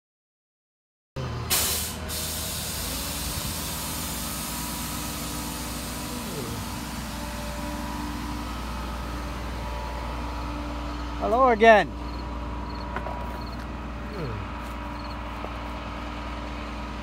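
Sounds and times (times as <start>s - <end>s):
vehicle engine running: 1.2s - 17.0s
short loud hiss: 1.5s - 4.8s.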